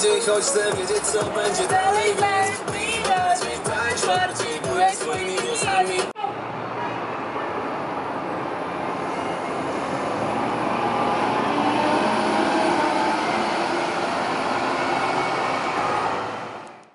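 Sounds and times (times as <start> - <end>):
traffic rumble: 0.0 - 16.9
bus pulling away with whine: 6.3 - 16.9.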